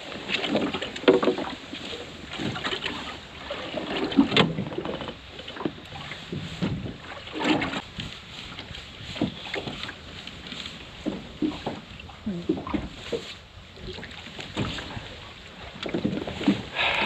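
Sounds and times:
water slapping against boat hull: 0:00.0 - 0:17.0
wind buffeting microphone: 0:05.7 - 0:17.0.

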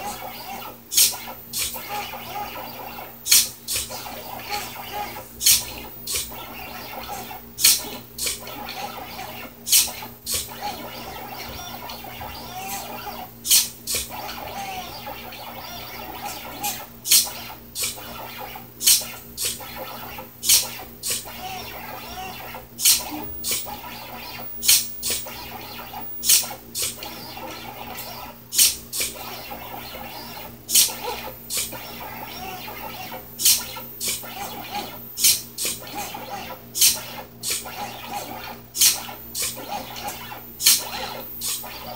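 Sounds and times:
stepper motors whirring: 0:00.0 - 0:41.9.

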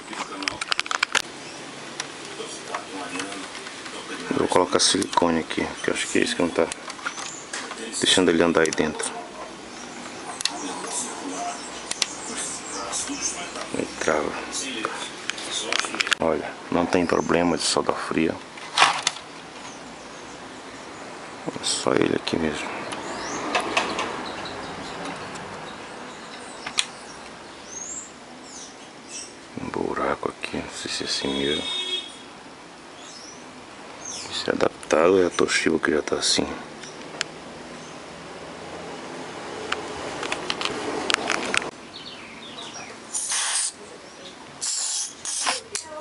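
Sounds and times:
steady background hiss: 0:00.0 - 0:46.0
plastic parts clicking: 0:00.2 - 0:01.3
aerosol spray hiss: 0:43.1 - 0:43.8, 0:44.6 - 0:45.6.

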